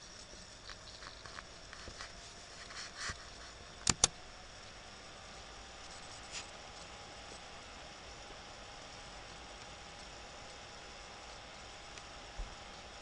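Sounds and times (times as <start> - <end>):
faint steady hiss: 0.0 - 13.0
soft rustles: 0.1 - 3.6, 5.9 - 6.8
sharp clicks: 3.8 - 4.2.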